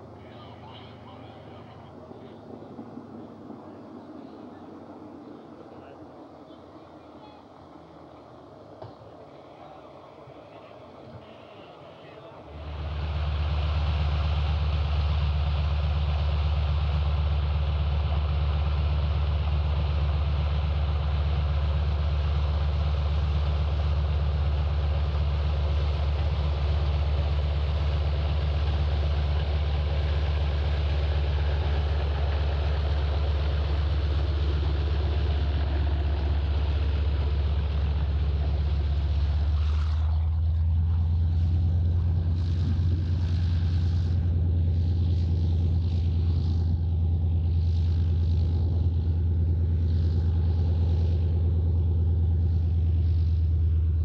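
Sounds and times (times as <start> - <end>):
radial aircraft engine droning: 0.0 - 54.0.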